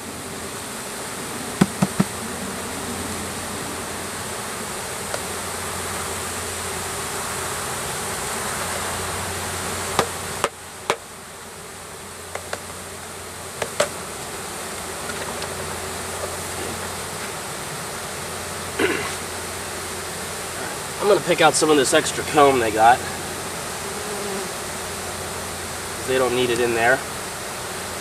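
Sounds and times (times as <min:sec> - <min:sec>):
bees buzzing: 0:00.0 - 0:28.0
knocks on wooden box: 0:01.6 - 0:02.2.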